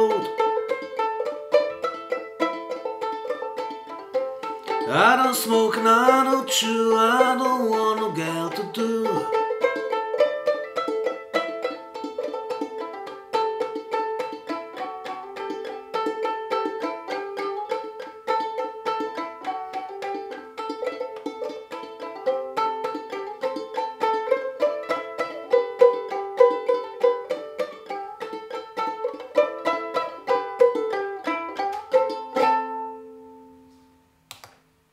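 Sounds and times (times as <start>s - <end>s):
banjo ukulele playing: 0.0s - 33.8s.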